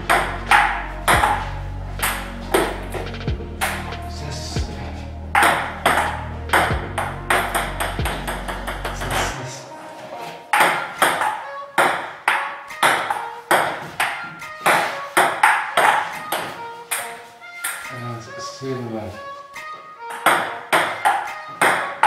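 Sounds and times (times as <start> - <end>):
table tennis ball hits: 0.1 - 2.8, 5.4 - 9.3, 10.5 - 17.9, 20.1 - 22.0.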